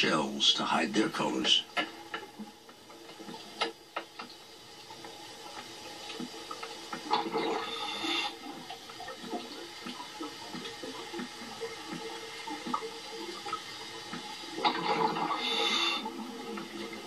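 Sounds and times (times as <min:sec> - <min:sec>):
underwater gurgling and bubbling: 0:01.9 - 0:17.0
rush of bubbles: 0:06.0 - 0:17.0.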